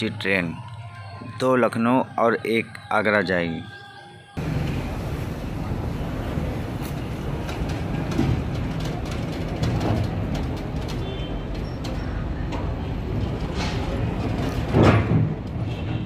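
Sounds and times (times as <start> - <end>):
freight train rumble: 4.4 - 16.0.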